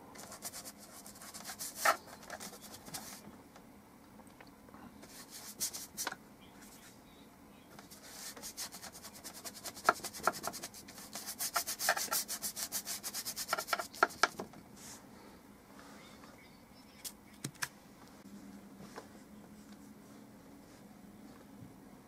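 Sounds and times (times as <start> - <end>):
bristle brush scrubbing paper: 0.2 - 3.2, 5.0 - 6.9, 7.8 - 15.0.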